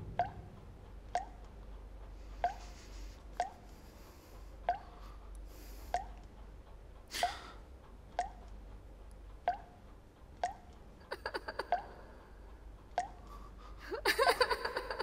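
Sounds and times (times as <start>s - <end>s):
short sharp drips: 1.1s - 1.5s, 2.4s - 3.8s, 4.7s - 6.3s, 8.2s - 8.6s, 9.4s - 9.8s, 10.4s - 10.8s, 11.7s - 12.0s, 12.9s - 13.4s.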